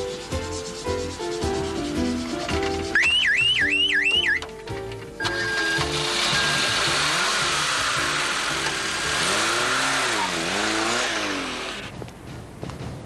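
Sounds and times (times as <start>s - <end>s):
music: 0.0s - 10.4s, 11.4s - 13.0s
engine revving: 5.2s - 12.0s
loud rushing noise: 5.8s - 12.0s.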